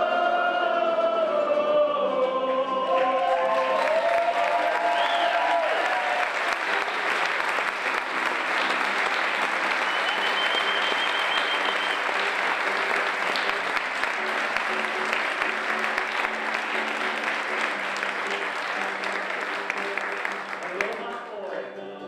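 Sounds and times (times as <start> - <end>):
audience clapping: 2.5 - 21.6
high whistle: 4.9 - 5.6, 9.8 - 12.2.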